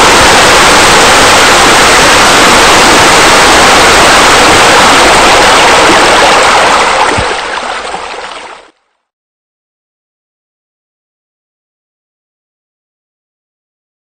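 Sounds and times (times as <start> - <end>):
water pouring over waterfalls: 0.0 - 8.9.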